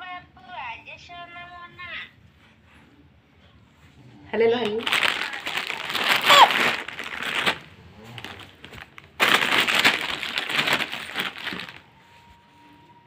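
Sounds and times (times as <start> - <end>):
plastic snack packet crinkling: 4.6 - 11.9
short high voice: 6.2 - 6.6.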